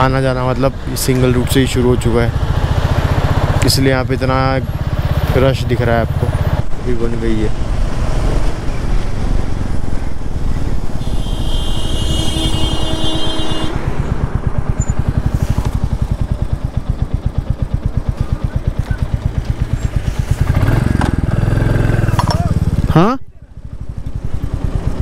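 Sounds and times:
motorcycle engine running: 0:00.0 - 0:06.8, 0:07.6 - 0:25.0
horn sounding: 0:11.0 - 0:14.0.

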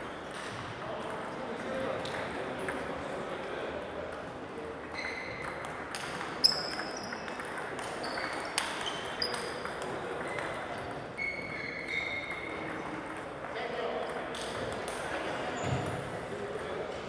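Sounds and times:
table tennis balls clicking: 0:05.3 - 0:11.1.

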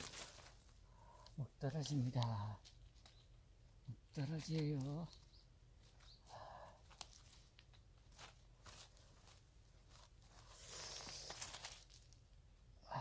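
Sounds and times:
hands digging in stony soil: 0:06.8 - 0:12.2.

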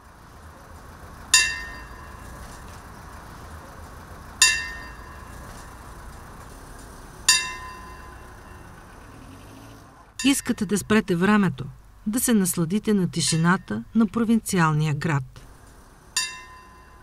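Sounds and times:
clock tower bell ringing: 0:01.3 - 0:02.3, 0:04.4 - 0:05.3, 0:07.3 - 0:08.8, 0:16.2 - 0:17.0.

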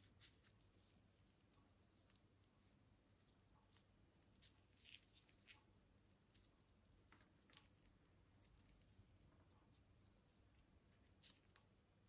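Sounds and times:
mushroom skin peeling: 0:03.8 - 0:06.7.

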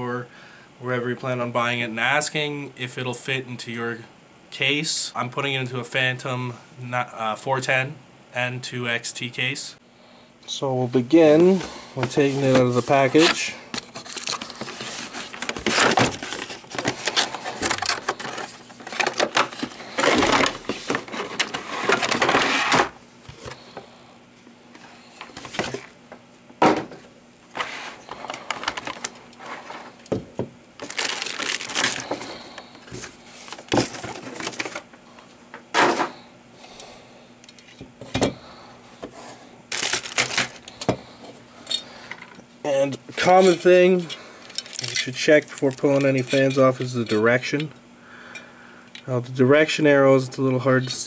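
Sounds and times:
plastic bag rustling and crinkling: 0:11.3 - 0:23.6, 0:27.5 - 0:30.0, 0:30.8 - 0:34.9, 0:39.2 - 0:40.8, 0:44.4 - 0:46.8.

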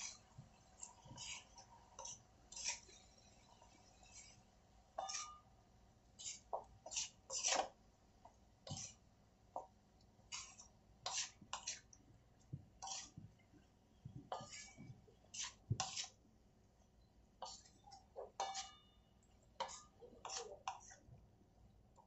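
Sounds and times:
wooden spatula scraping metal pan: 0:00.8 - 0:03.1, 0:05.0 - 0:05.4, 0:06.2 - 0:07.8, 0:08.6 - 0:09.0, 0:10.3 - 0:11.9, 0:12.8 - 0:13.2, 0:14.3 - 0:16.2, 0:17.4 - 0:18.8, 0:19.6 - 0:21.0.

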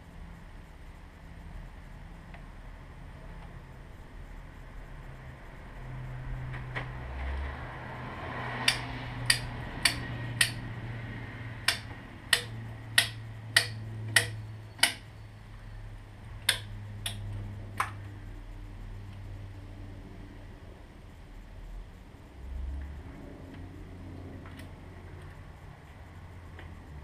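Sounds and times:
steady low hum: 0:00.0 - 0:27.0
sharp metallic hand tool clicks: 0:08.6 - 0:10.6, 0:11.6 - 0:15.1, 0:16.4 - 0:18.0.

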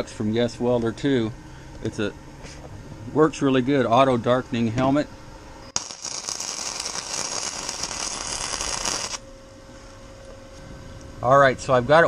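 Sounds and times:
welding arc crackling: 0:05.7 - 0:09.2.

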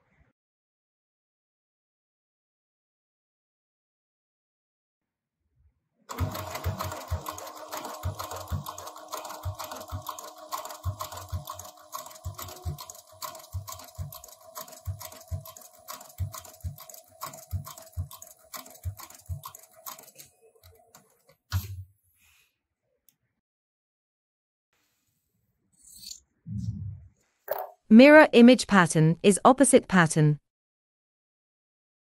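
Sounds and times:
sewing machine stitching: 0:06.1 - 0:21.6.

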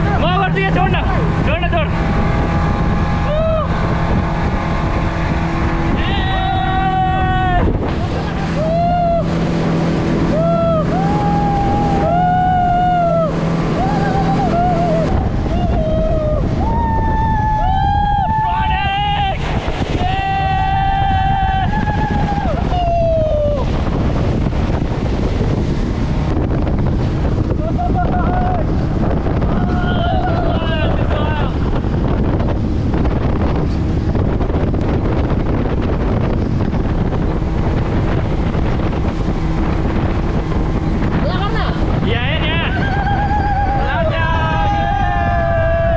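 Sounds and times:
boat motor: 0:00.0 - 0:45.9
faint engine hum: 0:00.0 - 0:45.9
wind and water rushing: 0:00.0 - 0:45.9
people whooping: 0:03.2 - 0:03.8, 0:06.0 - 0:09.4, 0:10.3 - 0:23.7, 0:29.5 - 0:31.5, 0:42.5 - 0:45.9.

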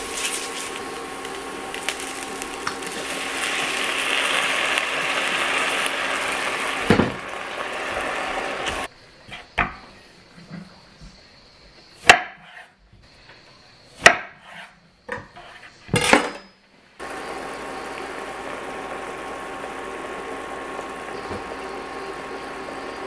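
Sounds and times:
faint hum: 0:00.0 - 0:12.0, 0:14.8 - 0:23.0
steady hiss: 0:00.0 - 0:12.2, 0:15.4 - 0:23.0.

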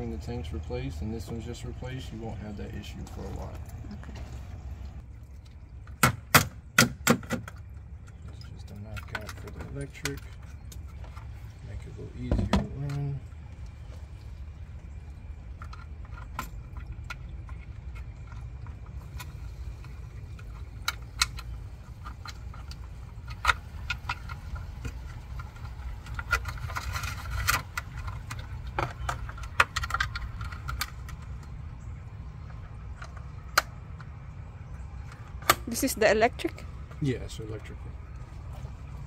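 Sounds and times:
steady low rumble: 0:00.0 - 0:06.7, 0:07.4 - 0:39.0
plastic parts clicking and rattling: 0:15.5 - 0:31.6.

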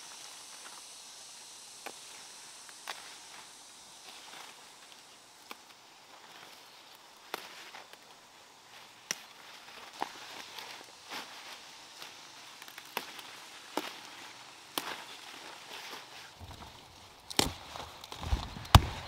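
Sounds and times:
leaves rustling: 0:00.0 - 0:19.0
stems snapping: 0:01.8 - 0:03.4, 0:04.1 - 0:08.1, 0:08.9 - 0:10.8, 0:12.0 - 0:19.0.

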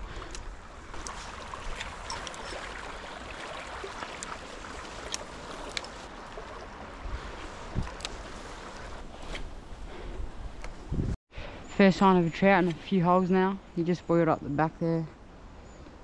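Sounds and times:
river water rushing: 0:00.8 - 0:08.8.

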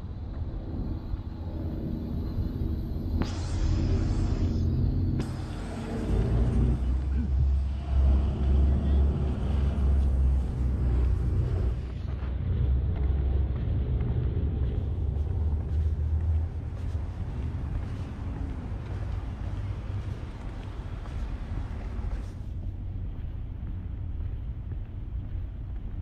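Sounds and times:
street traffic rumble: 0:00.0 - 0:26.0
sharp hiss: 0:03.2 - 0:06.3.

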